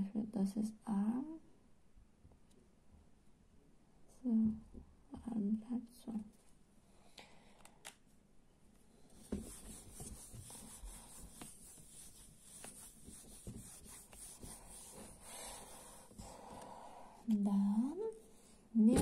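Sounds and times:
eraser scrubbing whiteboard: 0:09.2 - 0:16.5.

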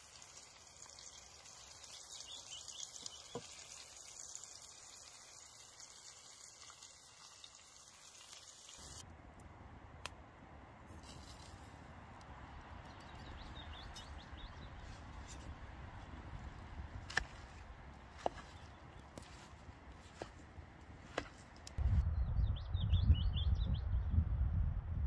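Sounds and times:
fish sizzling in a pan: 0:00.0 - 0:09.0
low rumble: 0:21.8 - 0:25.0.

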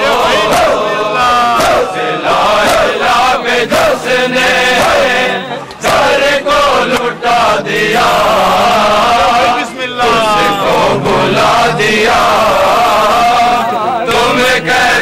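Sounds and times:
men chanting together: 0:00.0 - 0:15.0
sharp beats: 0:10.0 - 0:14.3.

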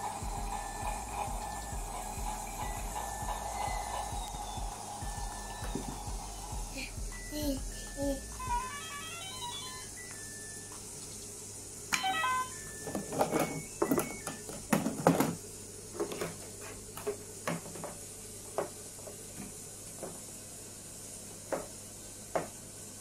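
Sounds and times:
electronic beep tones: 0:12.0 - 0:14.5.

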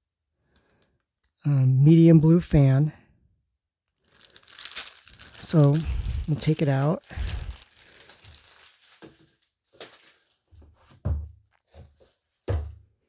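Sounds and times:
tissue paper crinkling: 0:04.0 - 0:10.6
gift box being handled: 0:04.1 - 0:10.4.

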